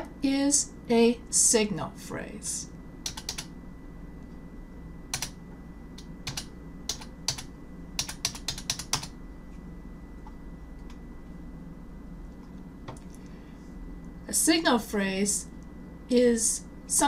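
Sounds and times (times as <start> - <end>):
low steady hum: 0.0 - 17.0
computer keyboard keystrokes: 3.0 - 3.5, 5.1 - 5.4, 6.0 - 9.2.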